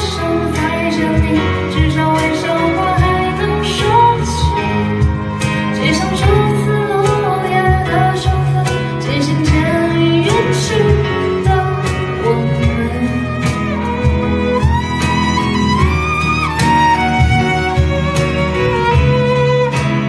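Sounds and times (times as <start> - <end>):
woman singing: 0.0 - 14.6
acoustic guitar: 0.0 - 20.0
keyboard: 0.0 - 20.0
violin: 0.0 - 20.0.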